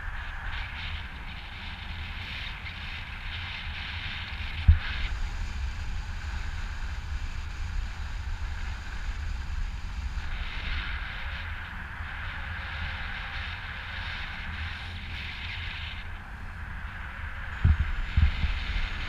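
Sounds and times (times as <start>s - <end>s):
wind buffeting microphone: 16.1s - 19.0s.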